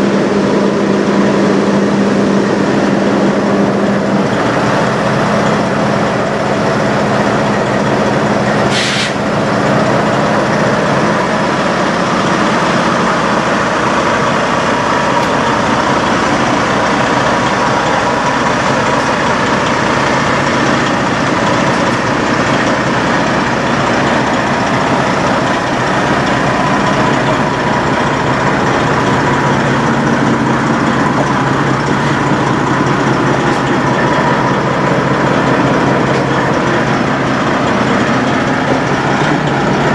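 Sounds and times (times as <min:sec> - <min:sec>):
diesel truck engine idling: 0:00.0 - 0:39.9
air hiss: 0:08.6 - 0:09.3.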